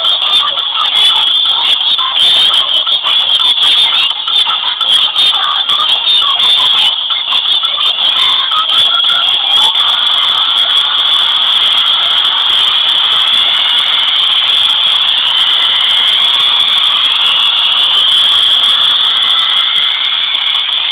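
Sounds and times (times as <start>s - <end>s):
high-pitched screeching noise: 0.0s - 20.9s.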